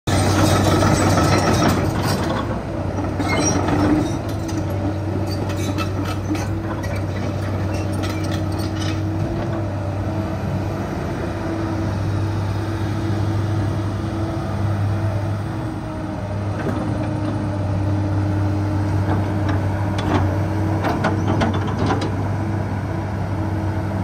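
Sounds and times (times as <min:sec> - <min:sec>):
excavator diesel engine running: 0:00.1 - 0:24.0.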